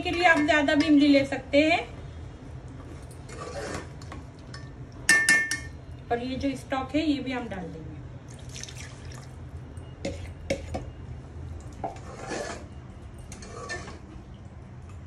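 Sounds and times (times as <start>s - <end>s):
spoon stirring and clinking on pot: 4.5s - 5.8s.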